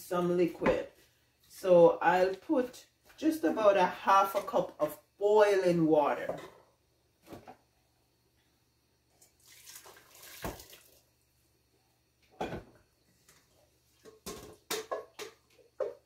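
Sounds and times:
water pouring and splashing: 0:09.2 - 0:11.0.

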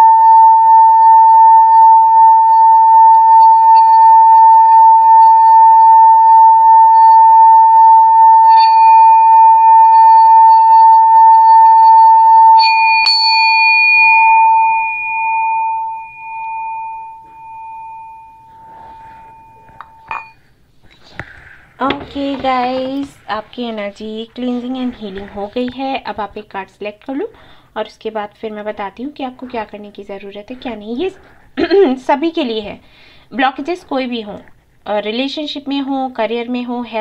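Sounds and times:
singing bowl ringing: 0:00.0 - 0:20.6
mallet clinking on bowl rim: 0:12.6 - 0:20.5.

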